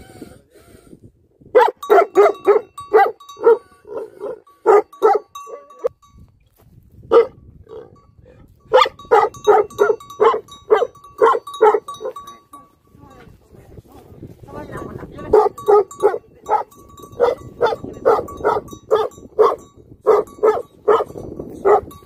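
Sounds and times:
dog barking deeply: 0:01.5 - 0:05.3, 0:07.1 - 0:07.9, 0:08.7 - 0:12.2, 0:15.3 - 0:21.9.

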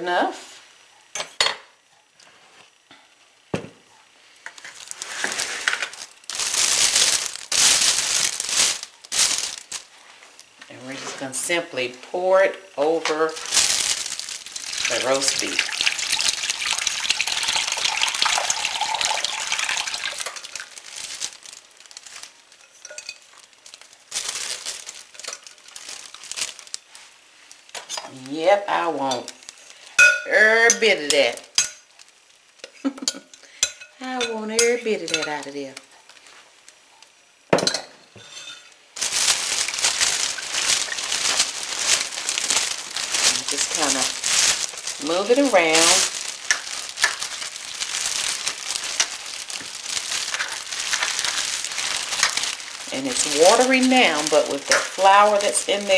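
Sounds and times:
liquid pouring into plastic bag: 0:04.7 - 0:10.0, 0:13.2 - 0:22.4, 0:23.5 - 0:27.7, 0:39.0 - 0:55.9
glass bowl clinking: 0:22.6 - 0:23.3, 0:30.0 - 0:30.8, 0:37.6 - 0:38.7.

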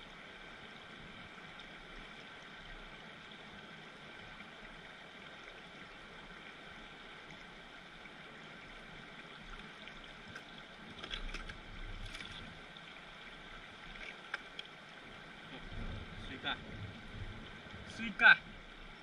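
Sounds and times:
river rushing over stones: 0:10.1 - 0:19.0.

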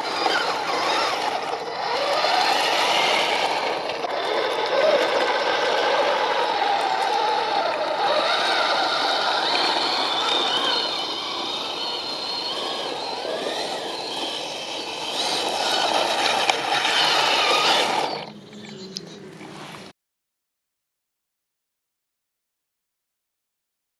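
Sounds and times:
electric motors whining: 0:00.0 - 0:19.9.

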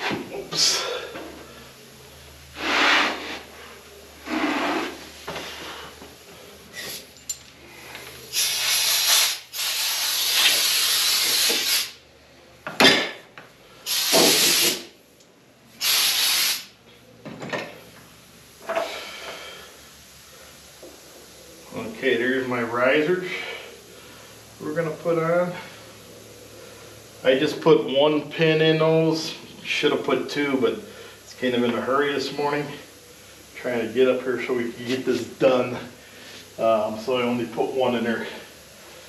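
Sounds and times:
compressed air hissing: 0:00.0 - 0:12.0, 0:13.7 - 0:15.0, 0:15.7 - 0:16.8, 0:22.7 - 0:27.4, 0:32.2 - 0:36.9.

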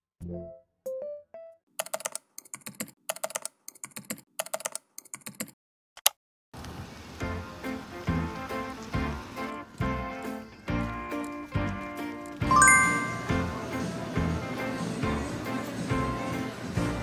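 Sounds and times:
keyboard typing clicks: 0:01.8 - 0:06.2
rising electric piano notes: 0:12.5 - 0:13.6
background music with steady beat: 0:12.5 - 0:17.0.

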